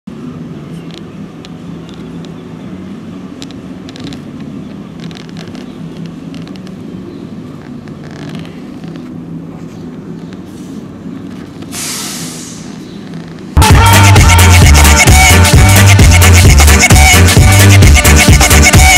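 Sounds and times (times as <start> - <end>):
low constant hum: 0.1 - 11.8
steady traffic noise: 0.1 - 18.9
faint clicks and knocks: 3.4 - 6.9, 7.5 - 9.2.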